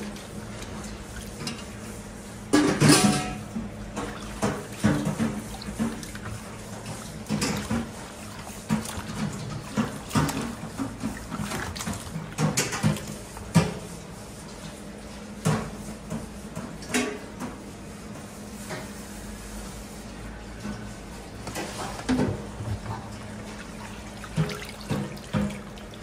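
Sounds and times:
meat splashing in water basin: 3.8 - 14.1, 21.9 - 26.0.

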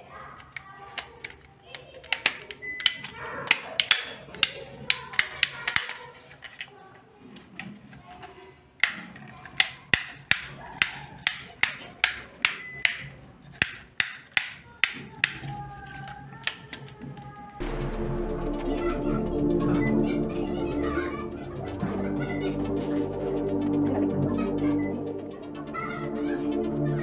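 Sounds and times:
rocker switches clicking: 9.6 - 15.5.

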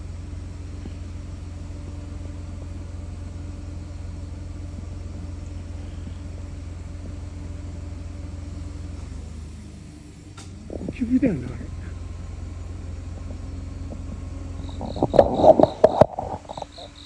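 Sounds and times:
steady low hum: 0.0 - 17.0
faint steady tone: 11.6 - 17.0.

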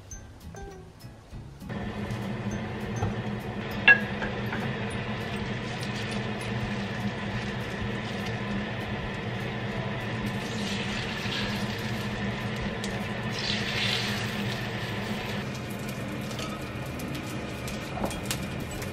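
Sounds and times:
gas stove hum and hiss: 0.0 - 18.9
oil sizzling: 1.7 - 18.9
metal cup clinking on pan: 3.8 - 4.7.

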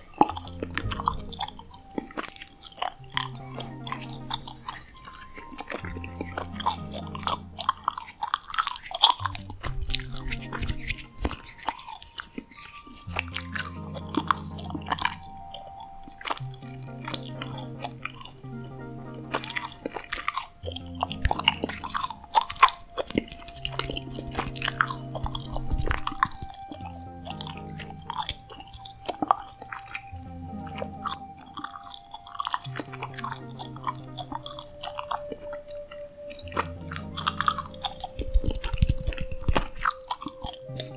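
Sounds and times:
gum chewing clicks and smacks: 0.0 - 40.9
soft background music: 0.0 - 40.9.

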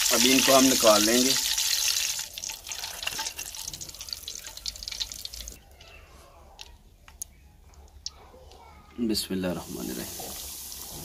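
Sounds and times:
frying oil crackling and sizzling: 0.0 - 5.6, 9.6 - 11.0
oil dripping into pan: 0.0 - 5.6.

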